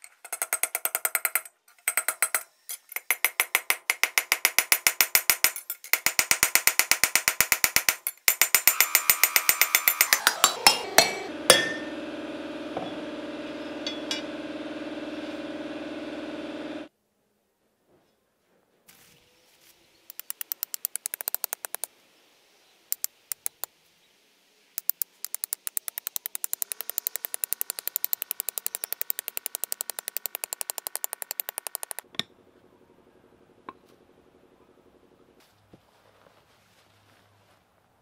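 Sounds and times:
hammer blows on steel anvil: 0:10.1 - 0:11.9
steady ringing tone: 0:11.4 - 0:15.1.

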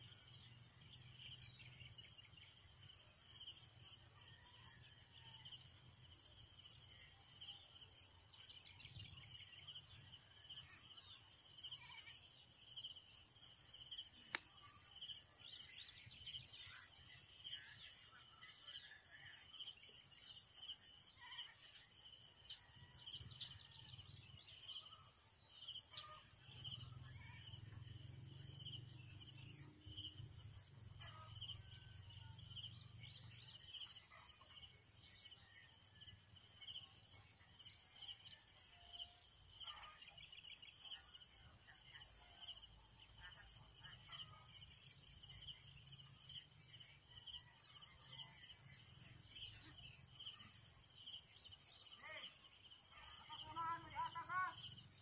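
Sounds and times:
crickets trilling: 0:44.2 - 0:55.0.

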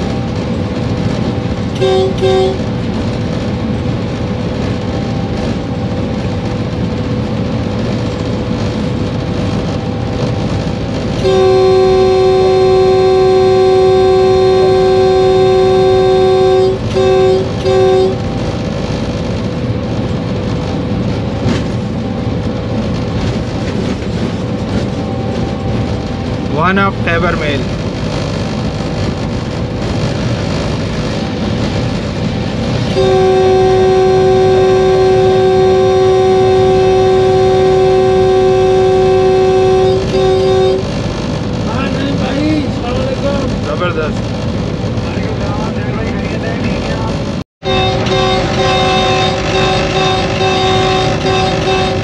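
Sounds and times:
locomotive horn: 0:00.0 - 0:03.1, 0:09.7 - 0:18.8, 0:31.1 - 0:41.1, 0:47.6 - 0:52.0
locomotive running noise: 0:00.0 - 0:52.0.

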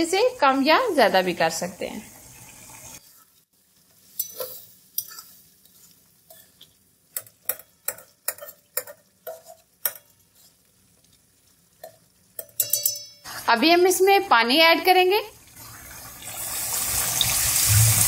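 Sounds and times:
spatula scraping metal pan: 0:04.2 - 0:06.7.

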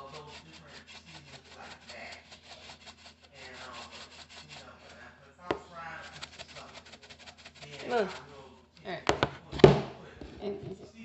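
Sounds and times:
pepper shaker rattling: 0:00.0 - 0:04.9.

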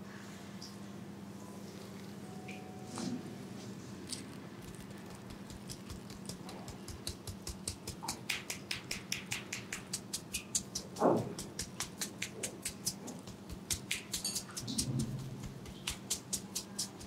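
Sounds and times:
fingertips tapping on skin: 0:04.6 - 0:17.0.

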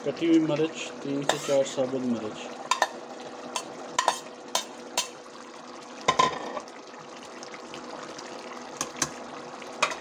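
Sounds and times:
simmering curry hissing: 0:00.3 - 0:05.9.

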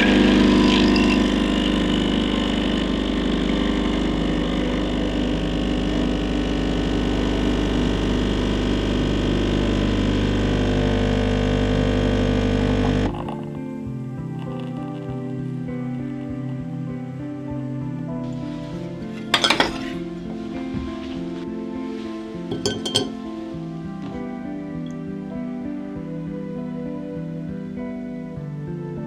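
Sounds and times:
espresso machine pump running: 0:00.0 - 0:13.5.

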